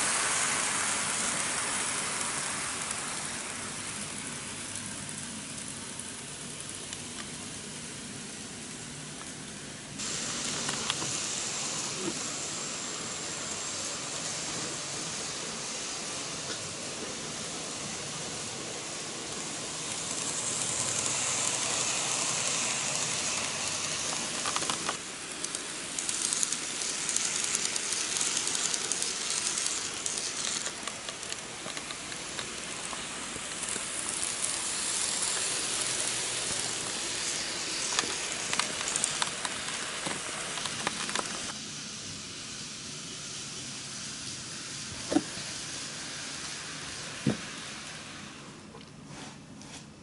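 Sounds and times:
model trains running on track: 0.0s - 50.0s.

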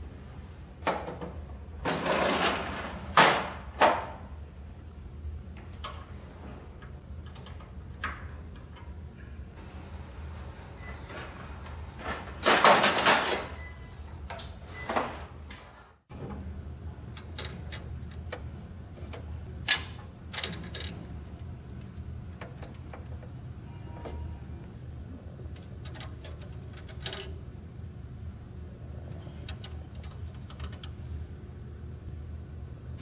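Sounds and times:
low steady hum: 15.6s - 33.0s.

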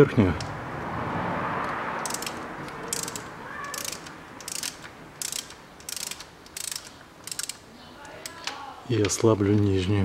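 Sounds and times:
hand ratchet clicking: 2.0s - 8.6s.

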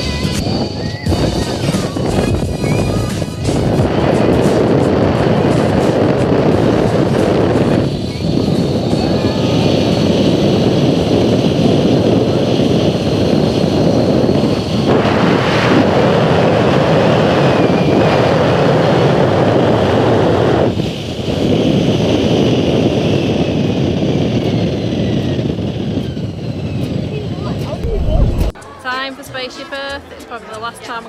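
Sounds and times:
wind rushing over microphone: 0.0s - 28.6s.

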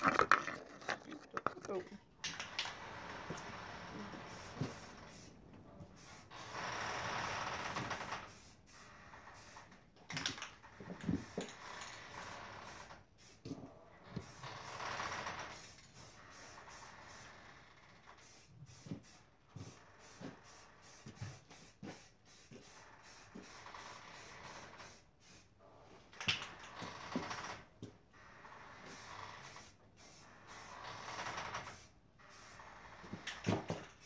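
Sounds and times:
spray can hissing: 4.3s - 5.3s, 20.0s - 23.6s, 29.4s - 30.7s.

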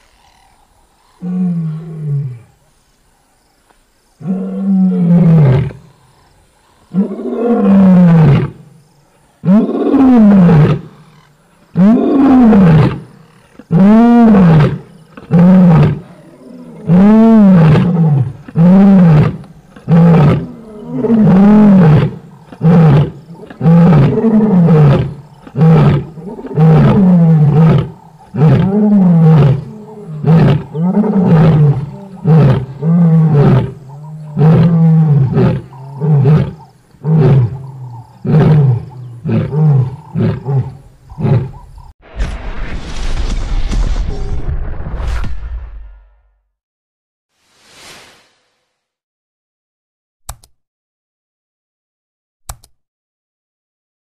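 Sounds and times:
lioness roaring and grunting: 6.9s - 8.7s, 11.8s - 41.9s.

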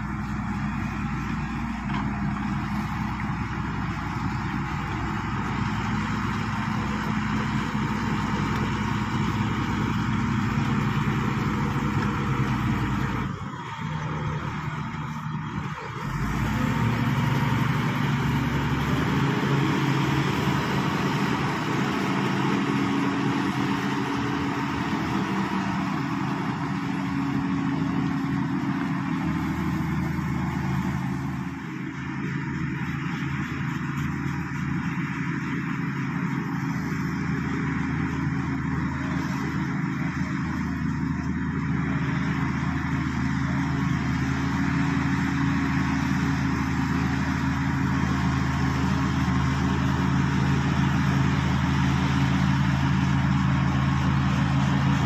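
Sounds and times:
bulldozer diesel engine drone: 0.0s - 55.0s.

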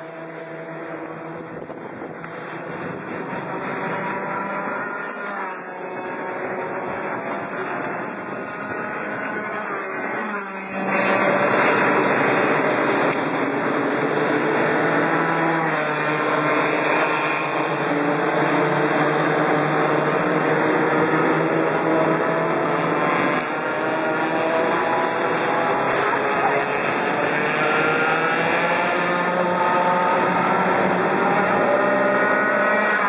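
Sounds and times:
kart engines buzzing: 0.0s - 33.0s.

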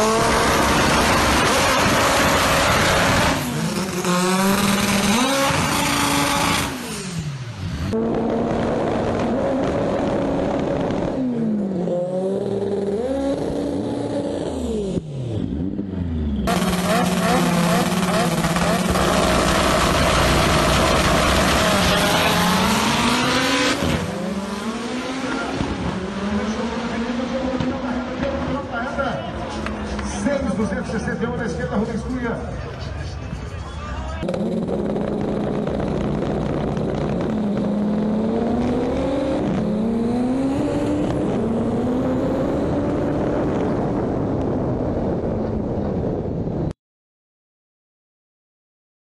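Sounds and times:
drag car engine revving: 0.0s - 28.8s, 34.2s - 44.5s.

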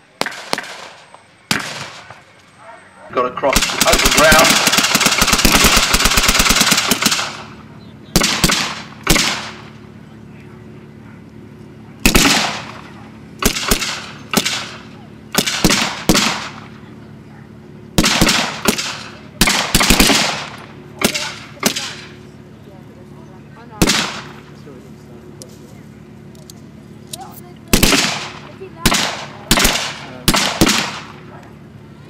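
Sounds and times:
automatic gunfire: 0.2s - 2.2s, 3.4s - 7.5s, 8.2s - 9.7s, 12.0s - 16.8s, 18.0s - 22.1s, 23.8s - 24.4s, 27.7s - 31.2s
single rifle shots: 0.2s - 2.2s, 3.4s - 9.7s, 12.0s - 16.8s, 18.0s - 22.1s, 23.8s - 24.4s, 27.7s - 31.2s.

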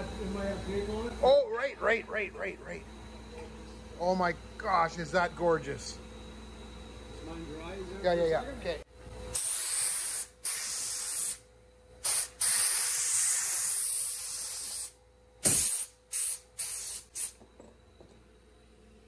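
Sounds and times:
air blow gun hissing: 9.3s - 11.4s, 12.0s - 17.4s.

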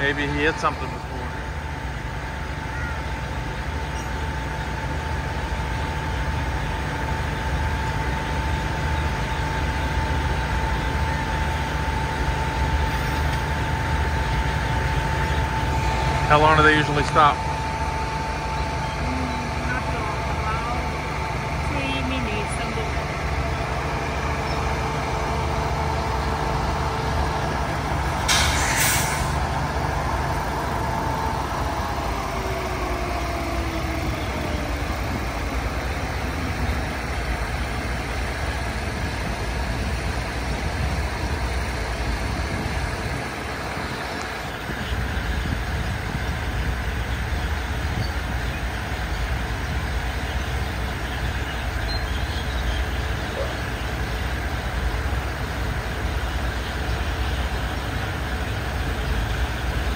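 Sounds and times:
diesel railcar engines idling: 0.0s - 59.9s
air brake hiss: 28.3s - 29.4s.

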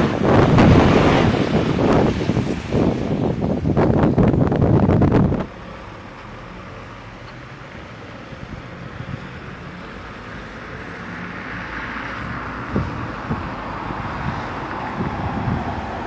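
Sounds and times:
vehicle passing: 0.0s - 3.4s, 7.8s - 16.0s
wind gusts bumping microphone: 0.0s - 5.6s, 8.2s - 16.0s
car engines: 0.0s - 16.0s.

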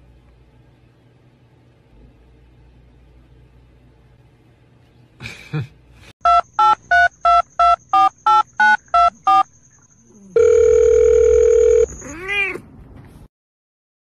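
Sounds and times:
telephone keypad beeps: 6.2s - 9.5s, 10.4s - 11.9s.

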